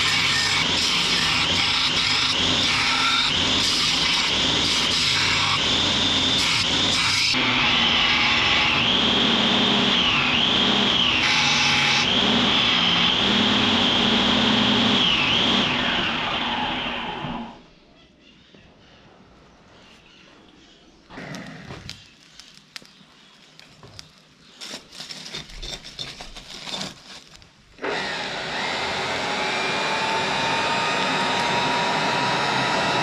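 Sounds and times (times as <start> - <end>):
belt grinder grinding steel: 0.0 - 17.6, 24.6 - 33.0.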